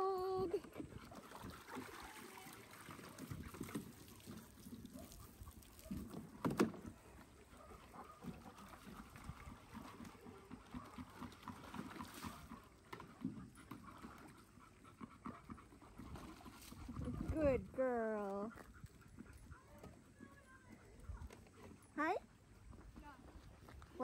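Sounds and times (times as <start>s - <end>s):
water sloshing and splashing: 0.0s - 20.0s.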